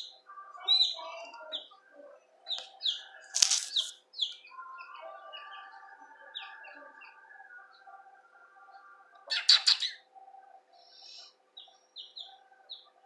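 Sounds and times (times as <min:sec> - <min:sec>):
chicks peeping: 0:00.0 - 0:13.0
loud scuffling: 0:03.3 - 0:03.9.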